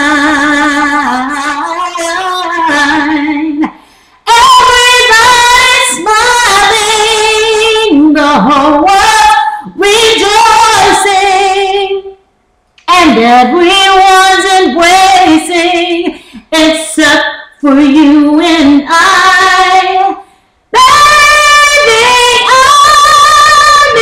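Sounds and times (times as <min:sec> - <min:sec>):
woman singing unaccompanied: 0:00.0 - 0:03.7, 0:04.3 - 0:12.2, 0:12.8 - 0:24.0.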